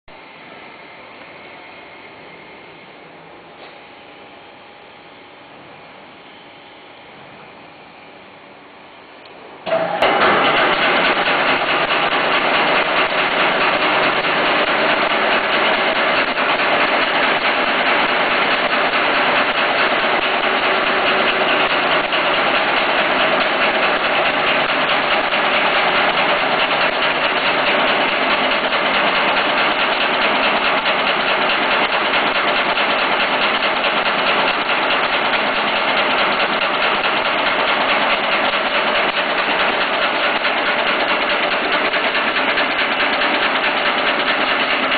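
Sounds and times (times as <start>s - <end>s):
machine rapid mechanical clatter: 9.7s - 44.9s.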